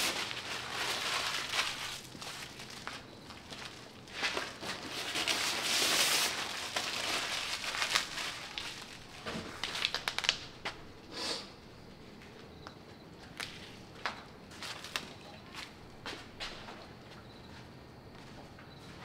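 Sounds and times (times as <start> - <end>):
crinkling rustling handling noise: 0.0 - 10.8, 13.2 - 16.4
footsteps on concrete: 12.2 - 19.0.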